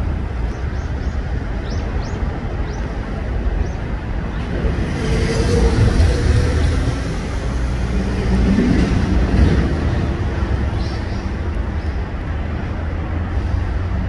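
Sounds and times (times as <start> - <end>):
low outdoor rumble: 0.0 - 14.0
small birds chirping: 0.4 - 4.6.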